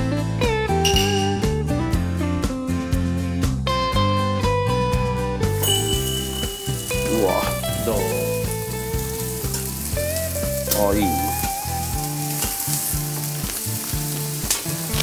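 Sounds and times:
background music: 0.0s - 15.0s
meat sizzling on a grill: 5.6s - 15.0s.

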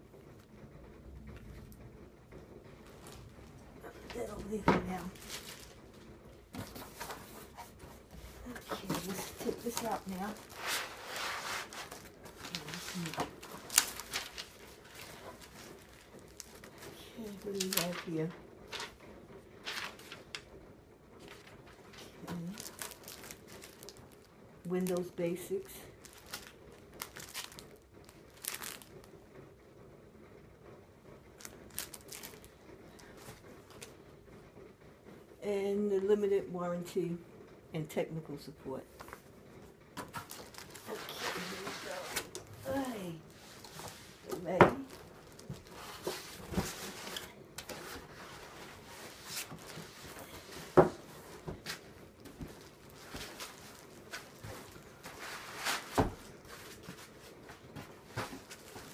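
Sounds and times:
plastic sleeve crinkling: 2.8s - 19.0s, 19.6s - 20.5s, 21.2s - 29.2s, 31.4s - 33.9s, 40.0s - 58.9s
cardboard scraping and rustling: 4.0s - 5.8s, 6.5s - 19.0s, 19.6s - 20.4s, 40.0s - 58.9s.

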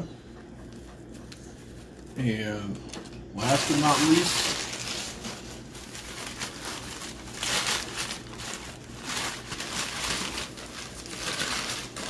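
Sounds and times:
paper wrapping crinkling: 3.4s - 12.0s.

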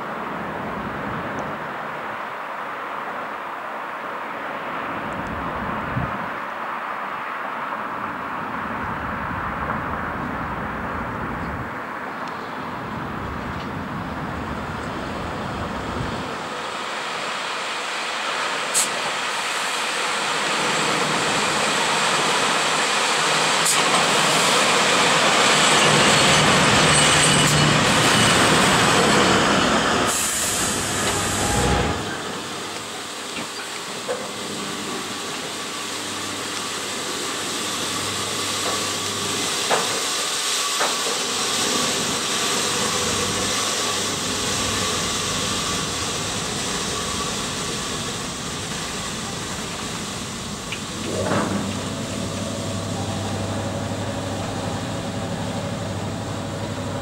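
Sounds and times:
locomotive humming: 12.8s - 57.0s
train wheels rumbling on rail: 12.9s - 57.0s
burst of hiss: 18.6s - 20.3s, 30.0s - 32.2s.

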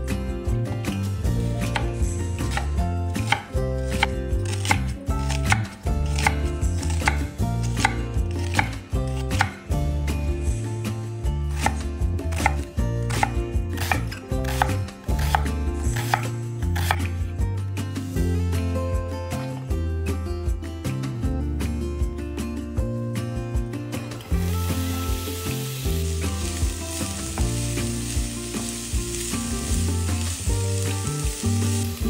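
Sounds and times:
background music: 0.0s - 32.0s
knife chopping on cutting board: 2.5s - 9.6s, 11.6s - 17.1s.

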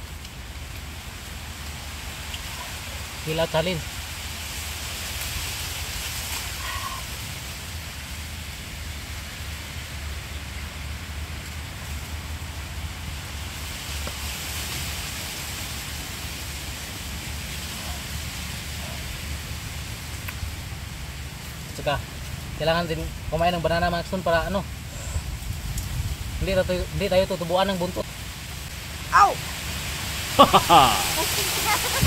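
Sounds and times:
even hiss: 22.6s - 32.0s.

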